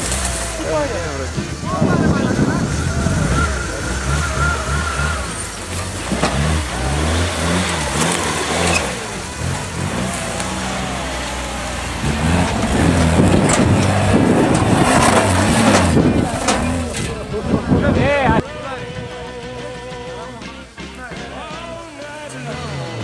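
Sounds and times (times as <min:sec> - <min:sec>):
pickup engine revving hard: 0:00.0 - 0:18.4.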